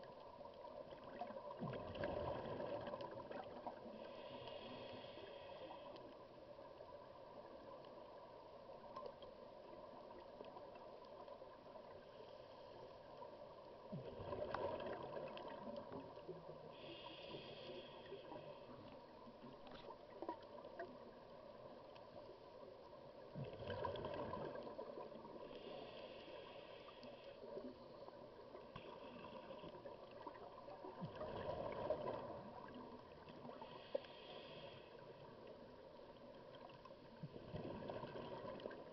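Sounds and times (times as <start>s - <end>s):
faint steady hum: 0.0s - 38.9s
hissing inhalations: 4.0s - 6.1s, 16.7s - 18.8s.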